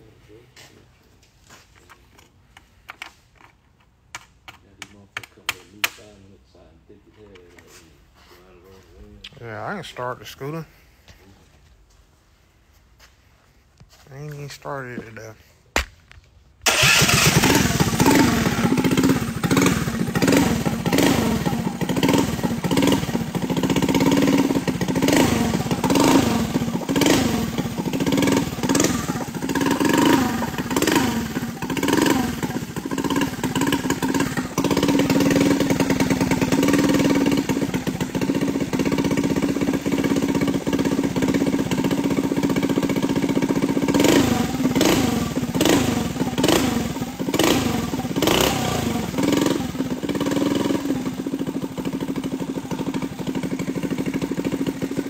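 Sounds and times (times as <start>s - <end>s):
small scooter engine revving: 16.7s - 55.0s.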